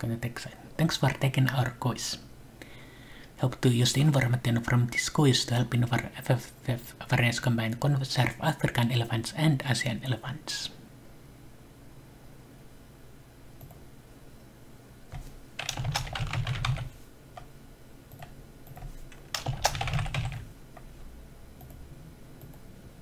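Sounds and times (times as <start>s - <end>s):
keyboard typing: 15.1s - 17.5s, 18.1s - 20.9s.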